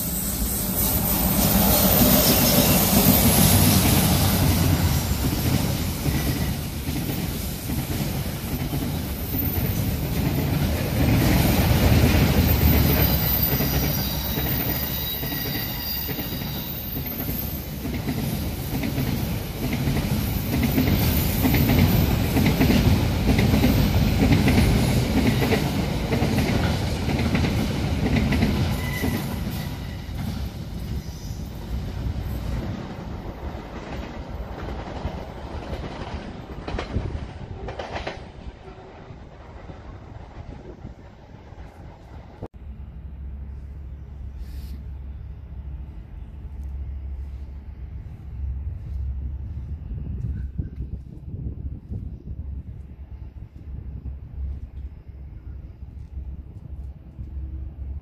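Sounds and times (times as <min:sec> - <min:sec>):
high wheel squeal: 0:00.0 - 0:03.5, 0:12.5 - 0:17.8, 0:28.7 - 0:30.2
steel wheels running on rails: 0:00.0 - 0:42.4
electric locomotive passing: 0:00.0 - 0:58.0.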